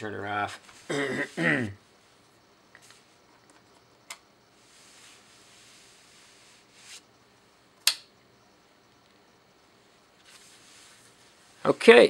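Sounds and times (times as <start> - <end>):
soft hiss: 0.0 - 12.0
sharp clicks: 7.8 - 8.1.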